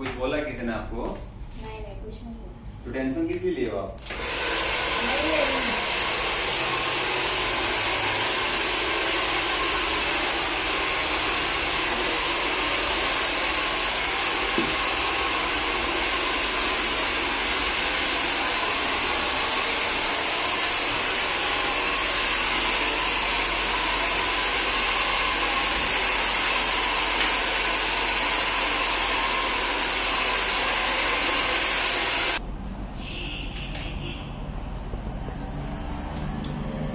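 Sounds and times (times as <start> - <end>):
hair dryer blowing: 4.0 - 32.4.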